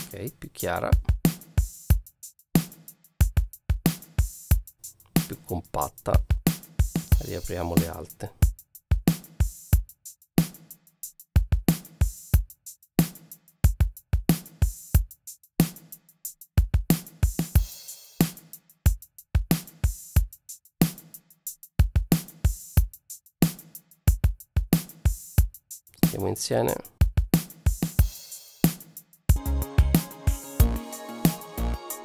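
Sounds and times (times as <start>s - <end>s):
drum kit groove: 0.0s - 32.0s.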